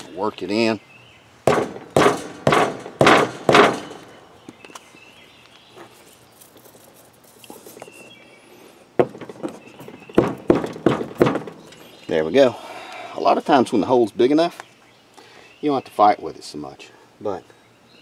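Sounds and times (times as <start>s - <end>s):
rubber mallet striking metal handle: 1.5s - 4.1s.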